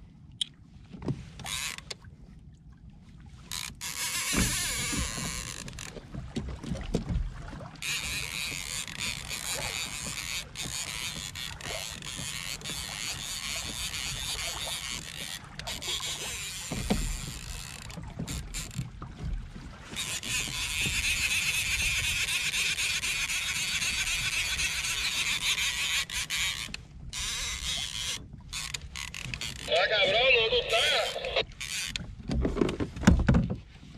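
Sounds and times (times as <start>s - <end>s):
water sloshing against hull: 0.0s - 33.9s
fishing reel drag buzzing: 3.5s - 5.9s, 7.8s - 17.9s, 20.0s - 29.7s, 31.0s - 32.0s.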